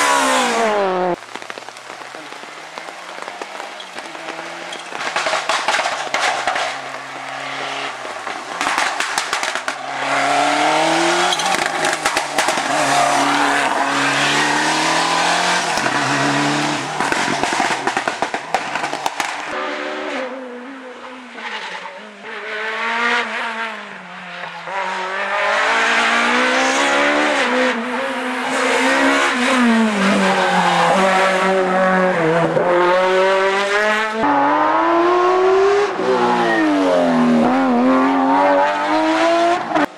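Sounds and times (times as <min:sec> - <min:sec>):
rally car engines revving: 0:00.0 - 0:01.2, 0:01.8 - 0:39.9.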